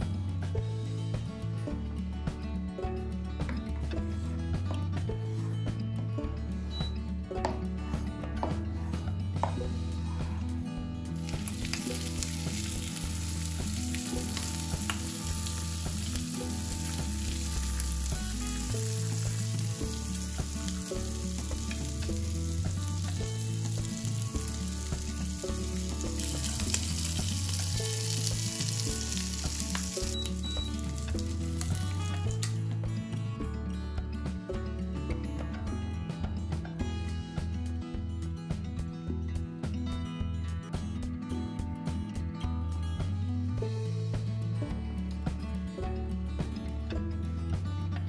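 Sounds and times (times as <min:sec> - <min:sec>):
background music: 0:00.0 - 0:48.0
food sizzling in a pan: 0:11.2 - 0:32.8.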